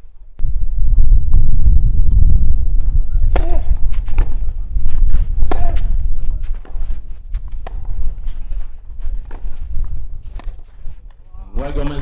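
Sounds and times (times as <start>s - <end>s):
steady low rumble: 0.0s - 12.0s
tennis ball struck by rackets: 3.3s - 4.4s, 5.4s - 6.0s, 7.6s - 8.0s.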